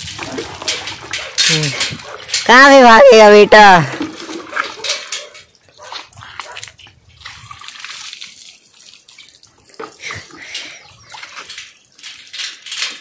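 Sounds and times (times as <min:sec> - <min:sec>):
water splashing: 0:03.5 - 0:05.0, 0:05.8 - 0:11.5.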